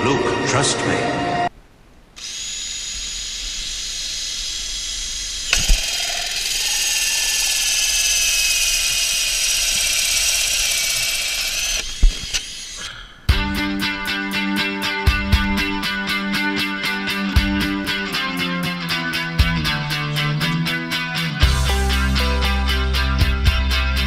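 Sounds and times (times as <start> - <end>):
power drill whining: 2.2 - 13.1
clicks: 5.0 - 8.9.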